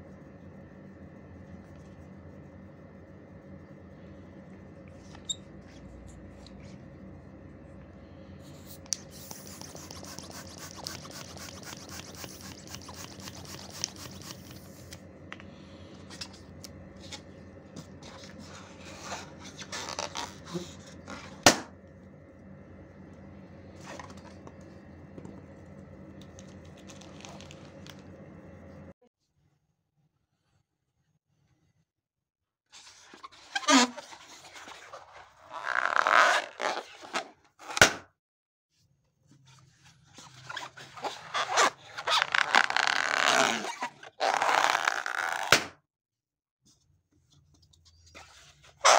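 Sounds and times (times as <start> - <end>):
steady low hum: 0.0 - 29.0
balloon rubber rubbing and squeaking: 8.6 - 14.9, 18.0 - 21.4, 33.3 - 37.3, 40.4 - 45.6, 48.2 - 48.9
balloon snap: 45.4 - 45.8.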